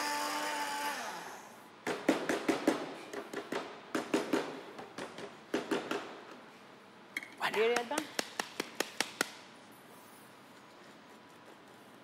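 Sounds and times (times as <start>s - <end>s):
blender motor running: 0.0s - 1.5s.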